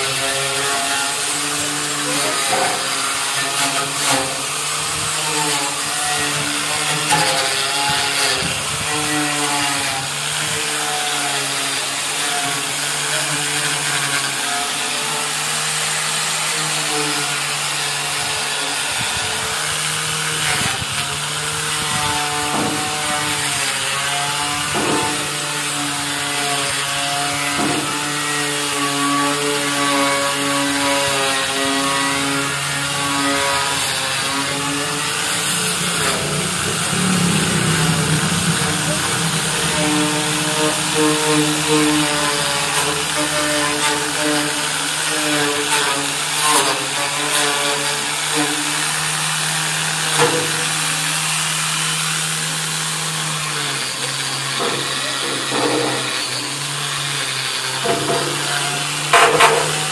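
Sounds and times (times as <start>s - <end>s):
angle grinder motor hum: 0.0s - 59.9s
grinding disc scraping metal: 32.5s - 44.7s.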